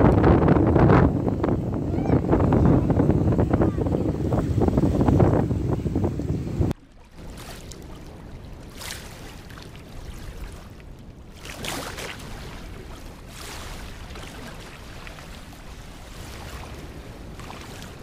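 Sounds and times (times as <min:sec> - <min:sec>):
wind buffeting microphone: 0:00.0 - 0:18.0
water splashing against rocks: 0:06.7 - 0:18.0.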